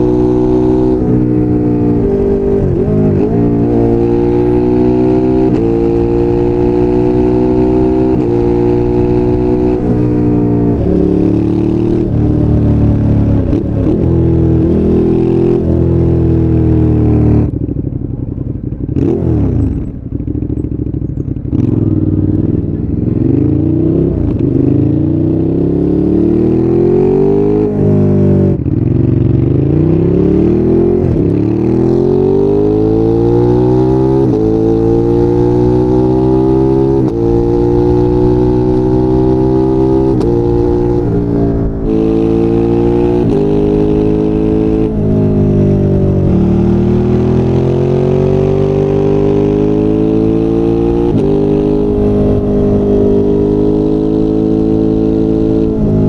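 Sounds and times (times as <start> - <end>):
motorcycle engine accelerating: 0.0 - 56.0.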